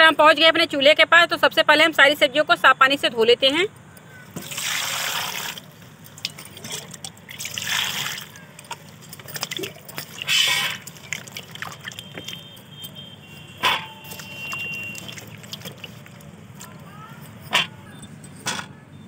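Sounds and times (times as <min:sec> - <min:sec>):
water splashing in steel bowl: 0:04.3 - 0:16.8.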